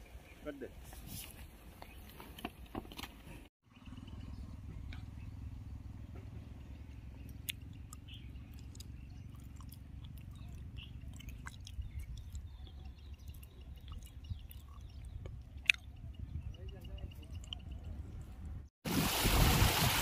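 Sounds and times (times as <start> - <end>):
wind on microphone: 13.6 - 20.0.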